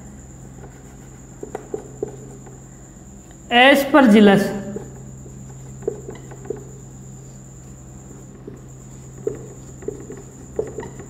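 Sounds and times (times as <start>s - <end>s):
low electrical hum: 0.0s - 11.0s
marker writing on whiteboard: 0.6s - 2.6s, 4.7s - 7.3s, 8.2s - 11.0s.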